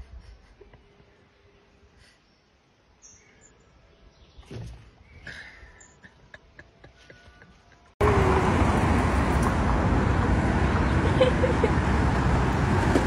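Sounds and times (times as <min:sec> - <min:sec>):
busy city road traffic: 0:05.4 - 0:13.0.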